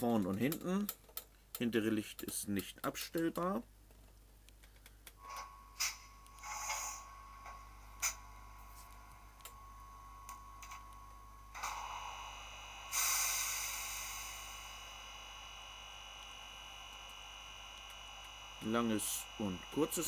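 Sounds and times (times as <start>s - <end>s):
faint steady whine: 3.1s - 20.0s
model locomotive sound effects: 11.5s - 20.0s
loud hiss: 11.6s - 20.0s
clicks and short hisses: 12.9s - 14.8s.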